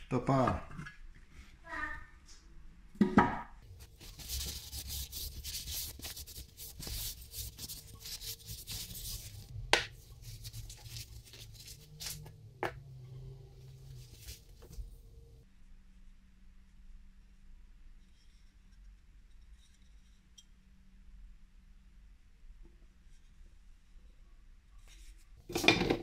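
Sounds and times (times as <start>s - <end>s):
paper towel scrubbing wood: 3.6s - 12.3s, 13.6s - 15.0s.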